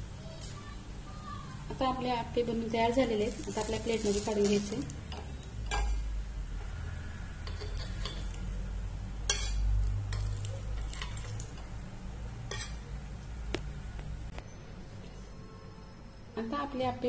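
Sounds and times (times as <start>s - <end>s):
spoon scraping metal pan: 7.4s - 8.4s, 9.3s - 11.8s, 12.4s - 12.9s.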